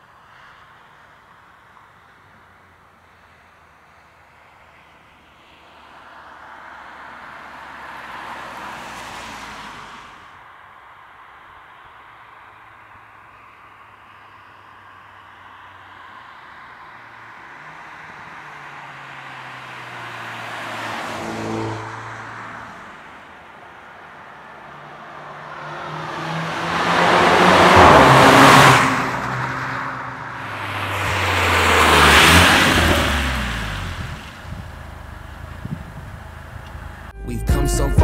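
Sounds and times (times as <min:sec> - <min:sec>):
car accelerating past: 0:06.2 - 0:10.3, 0:17.0 - 0:23.2, 0:24.4 - 0:37.2.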